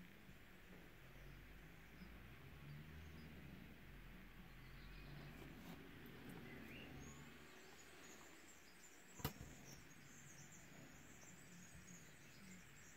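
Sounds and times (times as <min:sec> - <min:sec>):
faint high chirping: 0:04.2 - 0:12.9.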